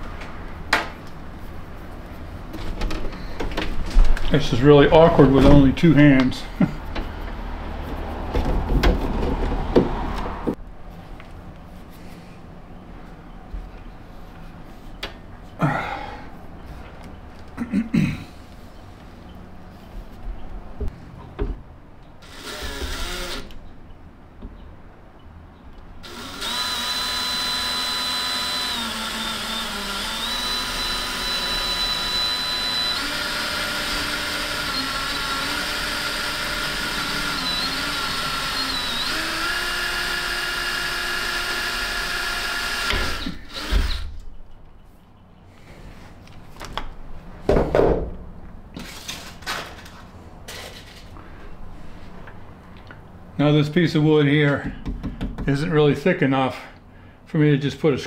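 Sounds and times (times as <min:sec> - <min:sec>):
electric drill boring metal: 0:22.2 - 0:23.5, 0:26.0 - 0:44.1
sharp knocks: 0:54.6 - 0:55.6.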